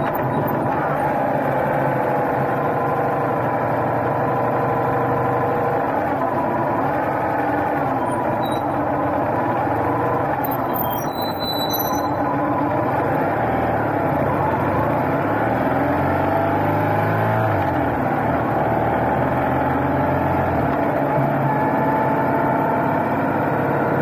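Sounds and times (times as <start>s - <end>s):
motorcycle engine running: 0.0s - 16.8s
wind and road noise: 0.0s - 24.0s.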